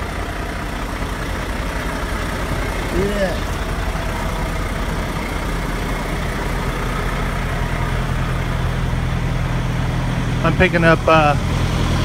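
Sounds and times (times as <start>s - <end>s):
truck diesel engine idling: 0.0s - 12.0s.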